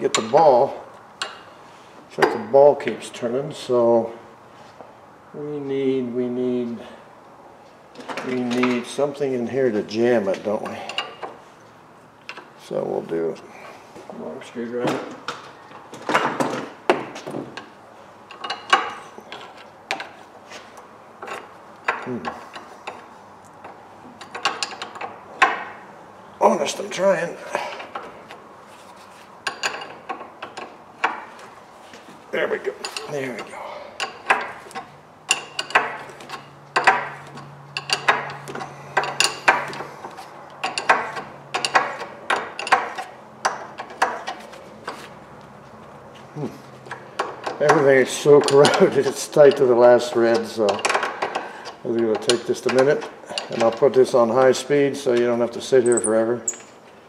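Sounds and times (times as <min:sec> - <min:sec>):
wrench clicking and clanking: 0:21.2 - 0:25.8, 0:29.4 - 0:31.3, 0:32.8 - 0:45.0, 0:46.9 - 0:54.6, 0:55.8 - 0:56.8.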